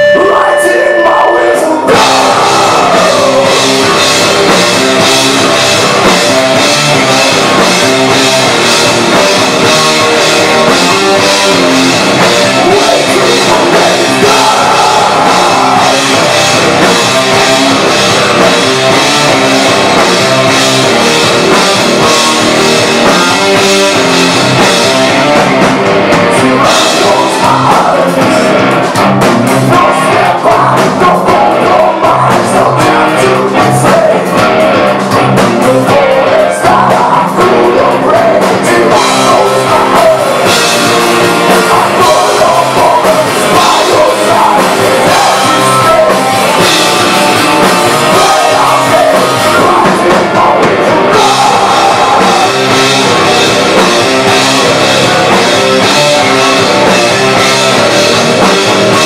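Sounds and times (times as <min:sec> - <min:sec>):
man singing: 0:00.0 - 0:59.0
rock band playing: 0:00.0 - 0:59.0.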